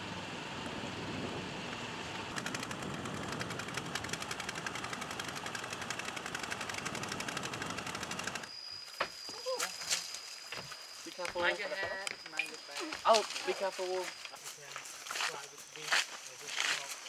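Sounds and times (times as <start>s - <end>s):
boat engine running: 0.0s - 8.5s
fast even rattling: 2.3s - 8.5s.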